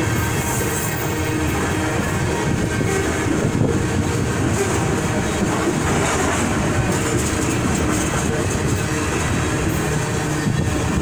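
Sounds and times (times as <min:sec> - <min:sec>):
freight train wheels rumbling on rails: 0:00.0 - 0:11.0.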